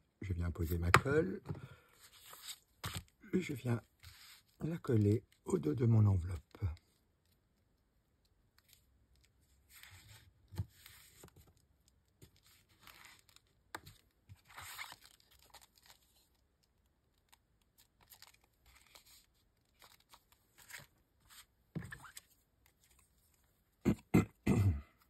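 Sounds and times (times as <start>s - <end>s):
paper envelopes rustling and sliding: 2.0s - 3.1s, 12.3s - 16.2s.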